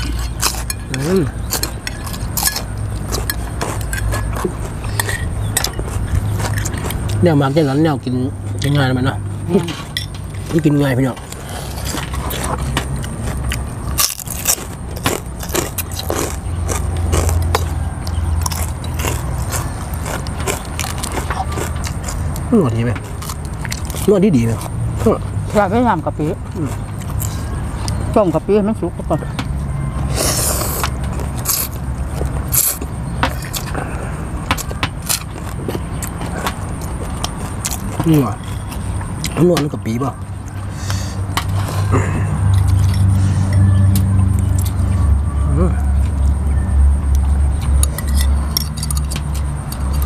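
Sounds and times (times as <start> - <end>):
noodles slurped and chewed: 0.0 - 7.3, 11.3 - 22.4
chewing: 0.0 - 7.8, 9.6 - 28.1, 30.1 - 45.0
steady low hum: 0.0 - 50.0
cutlery clicking against glass bowls: 47.6 - 50.0.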